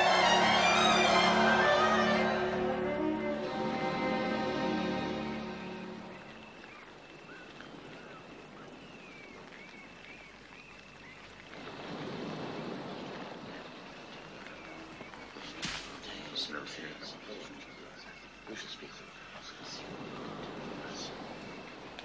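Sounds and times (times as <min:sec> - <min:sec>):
orchestral string music: 0:00.0 - 0:06.6
wind and water wash: 0:03.4 - 0:17.8, 0:18.4 - 0:22.0.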